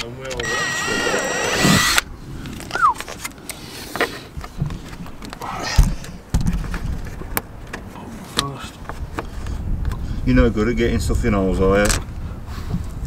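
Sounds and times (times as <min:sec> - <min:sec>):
cordless drill whining: 0:00.4 - 0:02.1.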